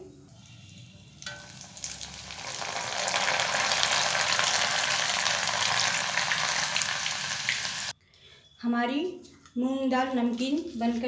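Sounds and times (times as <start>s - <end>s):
oil sizzling and crackling: 0.4s - 7.9s.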